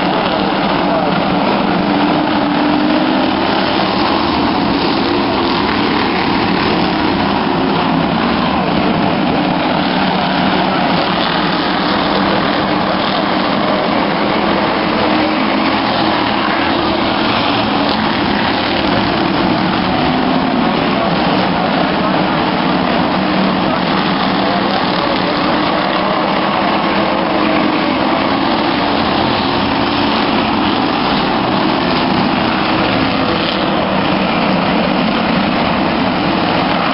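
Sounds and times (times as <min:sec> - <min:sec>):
stock car engines droning: 0:00.0 - 0:36.9.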